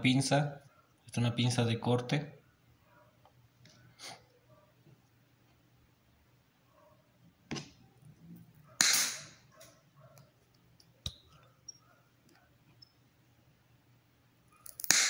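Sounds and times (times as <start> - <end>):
pliers cracking wooden stick: 8.8 - 9.4, 14.7 - 15.0.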